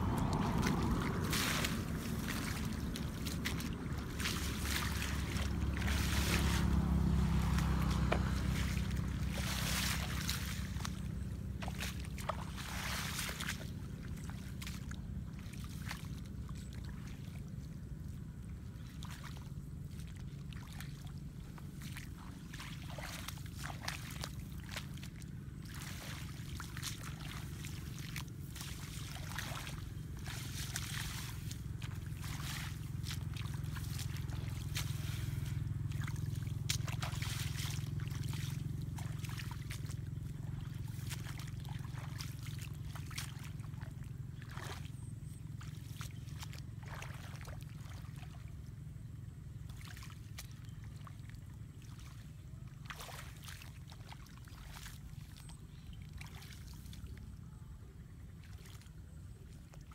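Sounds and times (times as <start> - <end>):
wind rumble on microphone: 0.0 - 46.8.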